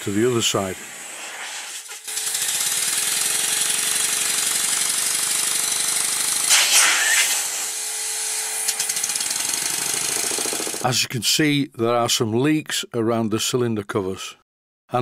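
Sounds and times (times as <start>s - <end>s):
air hissing: 0.6s - 2.1s, 6.5s - 7.8s.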